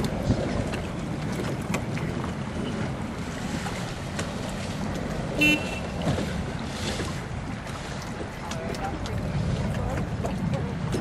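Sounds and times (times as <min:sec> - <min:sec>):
wind buffeting microphone: 0:00.0 - 0:11.0
loud horn blast: 0:05.4 - 0:05.9.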